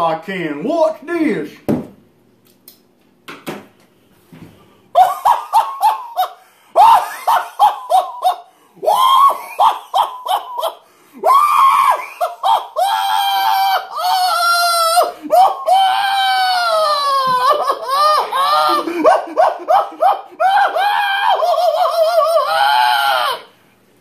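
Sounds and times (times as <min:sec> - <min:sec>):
man's forced laughter: 0:05.0 - 0:23.4
man's strained high cry: 0:05.0 - 0:23.6.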